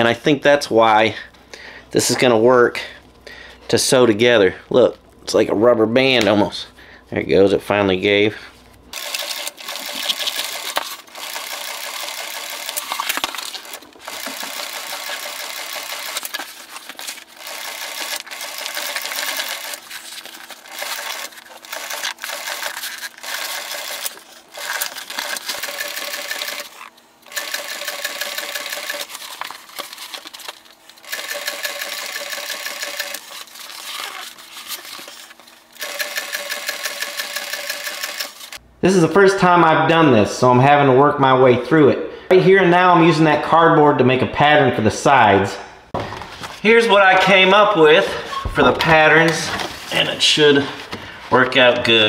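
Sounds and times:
industrial sewing machine stitching: 9.0 - 16.4, 17.4 - 19.8, 20.7 - 29.2, 31.0 - 33.3, 35.8 - 38.6.

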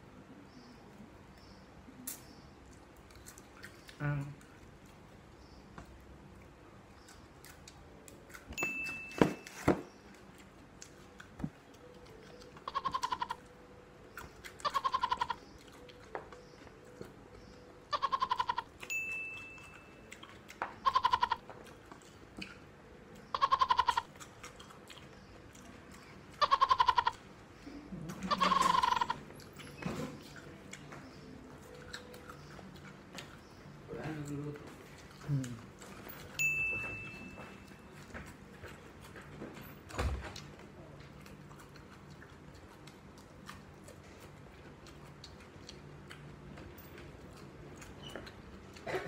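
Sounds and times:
animal bleating: 12.6 - 13.4, 14.6 - 15.4, 17.9 - 18.7, 20.8 - 21.4, 23.3 - 24.1, 26.4 - 27.2, 28.1 - 29.2.

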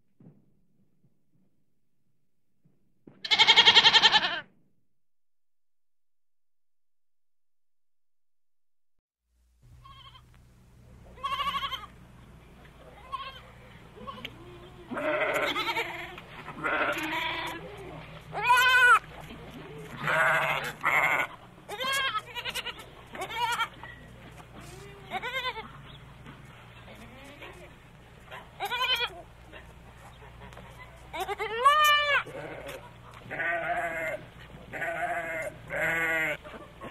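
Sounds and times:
goats bleating: 3.2 - 4.4, 11.2 - 12.0, 12.9 - 23.8, 24.5 - 25.9, 26.8 - 27.7, 28.6 - 29.4, 30.4 - 36.5
steady low hum: 9.4 - 36.9.

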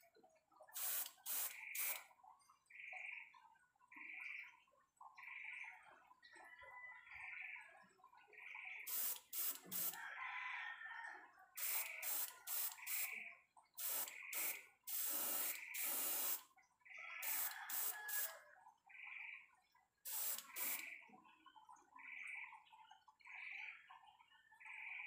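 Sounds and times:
airbrush spraying paint: 0.8 - 2.0, 8.9 - 10.0, 11.6 - 13.2, 13.8 - 16.4, 17.2 - 18.3, 20.1 - 20.9.

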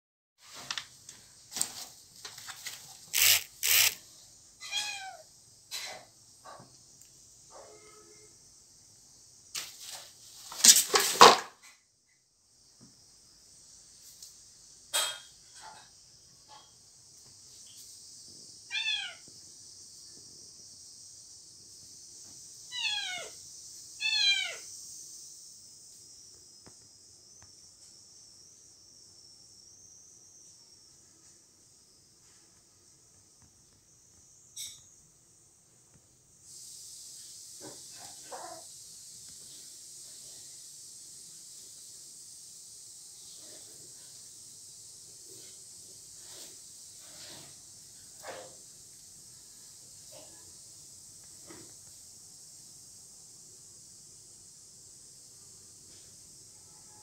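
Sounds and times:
kitten meowing: 4.6 - 5.2, 18.7 - 19.2, 22.7 - 23.4, 24.0 - 24.6.

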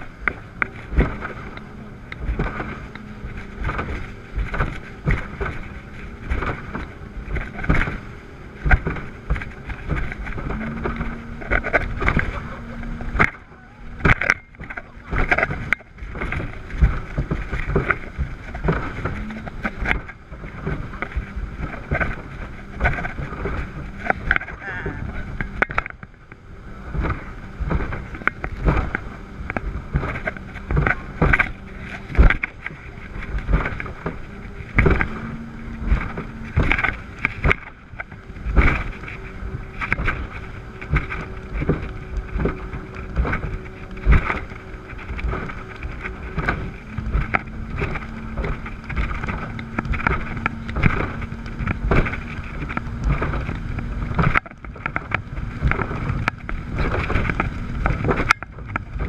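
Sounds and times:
hull slapping on waves: 0.0 - 59.0
outboard engines droning: 0.0 - 59.0
wind on microphone: 0.0 - 59.0.

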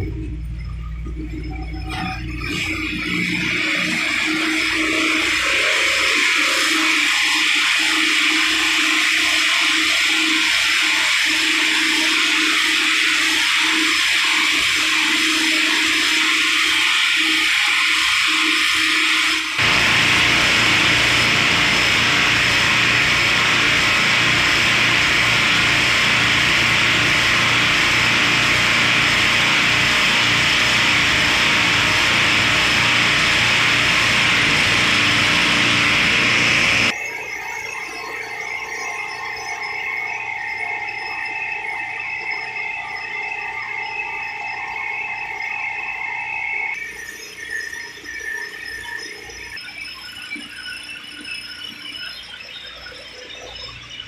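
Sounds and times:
machinery hissing steadily: 2.2 - 37.0
ice plant machinery rushing: 19.6 - 36.9
low hum: 19.6 - 36.9.

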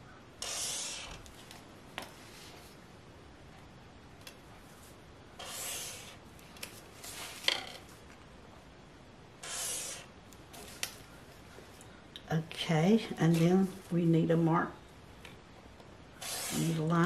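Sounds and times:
marker scratching along a board: 0.4 - 1.3, 5.4 - 6.2, 9.4 - 10.1, 16.2 - 16.9.

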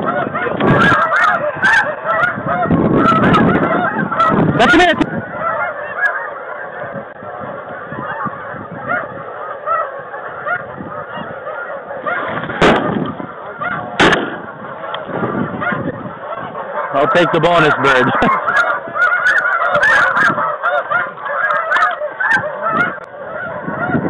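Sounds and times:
geese honking: 0.0 - 24.0
sharp bangs: 12.2 - 13.2, 13.9 - 15.2.

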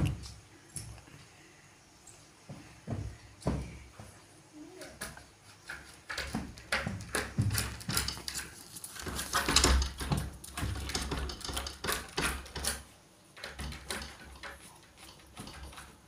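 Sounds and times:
dog beating at wooden door: 6.1 - 8.4, 9.0 - 12.8, 13.4 - 14.6.

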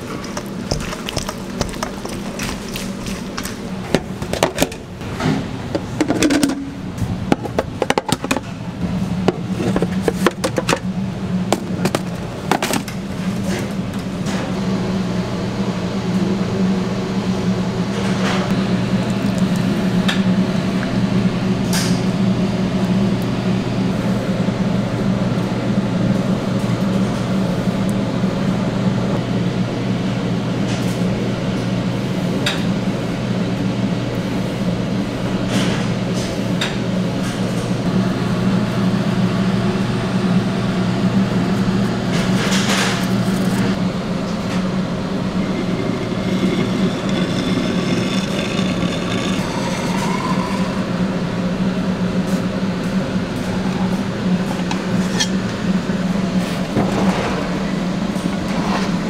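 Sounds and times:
kitchen equipment humming: 0.0 - 59.0
utensil scraping in a bowl: 45.2 - 50.8.

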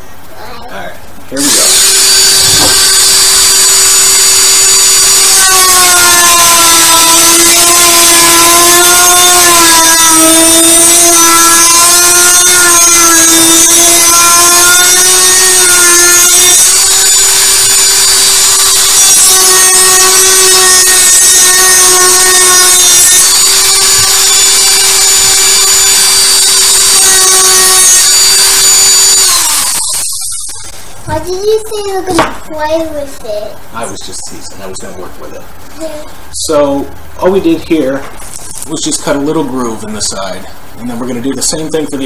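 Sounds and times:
rotary tool grinding plastic pipe: 1.4 - 30.2.

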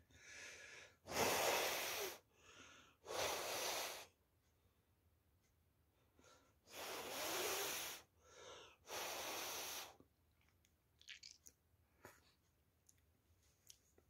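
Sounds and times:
breath drawn in: 6.7 - 10.0.

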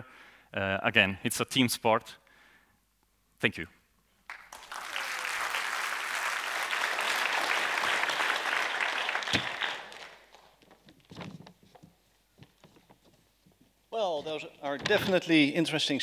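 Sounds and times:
audience applauding: 4.3 - 10.6.

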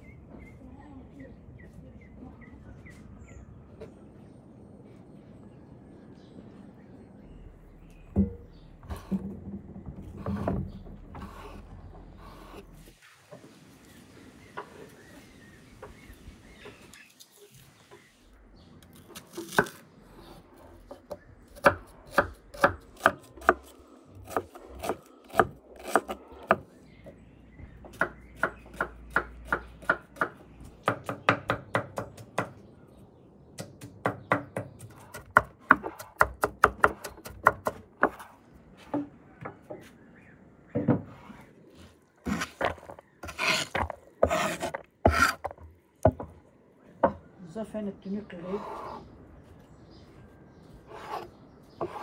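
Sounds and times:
knife scraping across board: 11.2 - 12.7, 41.1 - 45.6, 48.5 - 49.1, 50.8 - 52.0
knife chopping on wooden board: 42.3 - 45.5.

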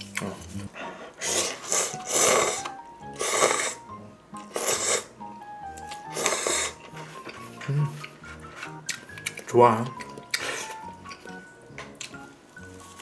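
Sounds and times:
noodles being slurped: 1.2 - 3.8, 4.4 - 5.1, 6.0 - 6.8.

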